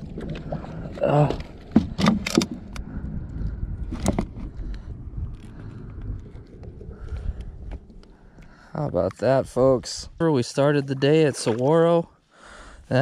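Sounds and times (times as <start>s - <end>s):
low steady rumble: 0.0s - 13.0s
fishing gear knocks and clicks: 1.2s - 2.9s, 3.9s - 4.6s.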